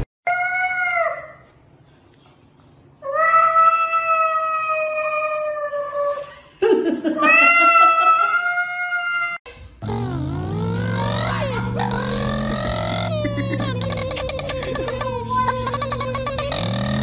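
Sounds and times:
cat growling: 9.8s - 17.0s.

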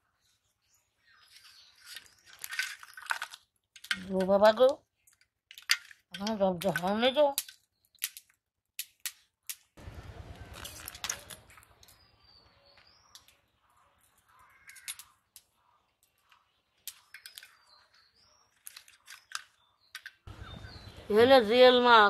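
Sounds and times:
faint bird calling: 12.1s - 16.5s.

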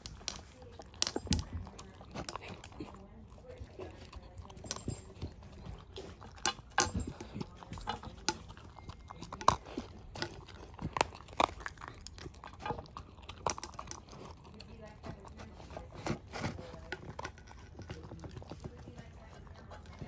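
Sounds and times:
food clicking against metal bowl: 0.0s - 2.8s
dog crunching food: 0.0s - 20.0s.

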